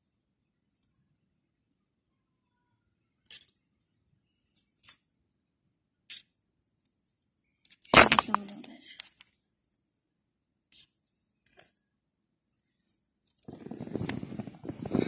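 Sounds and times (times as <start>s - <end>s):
plastic toys clicking and rustling: 3.3s - 3.6s, 7.7s - 9.4s.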